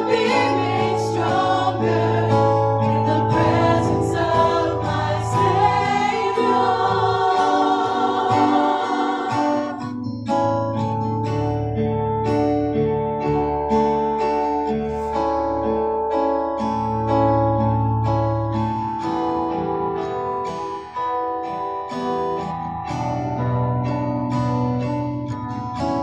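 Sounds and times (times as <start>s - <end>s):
women singing together: 0.0s - 9.9s
guitar accompaniment: 0.0s - 26.0s.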